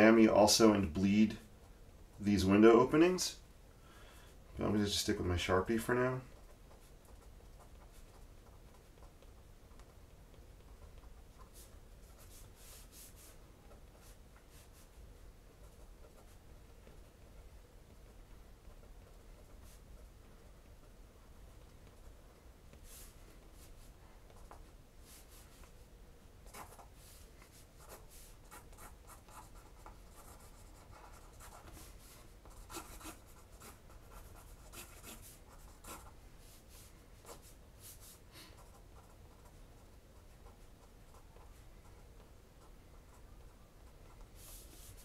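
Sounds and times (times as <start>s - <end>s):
marker scratching on paper: 10.6s - 15.0s, 26.4s - 42.0s, 44.0s - 45.0s.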